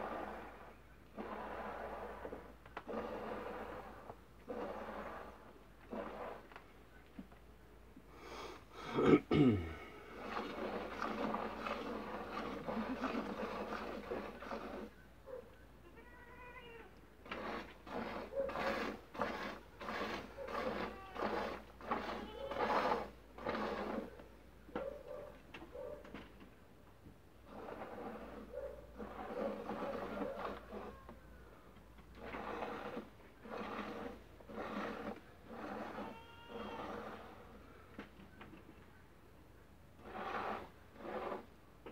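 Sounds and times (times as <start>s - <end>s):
goat grunt: 8.8s - 10.4s
milk squirting into a bucket: 10.0s - 14.9s.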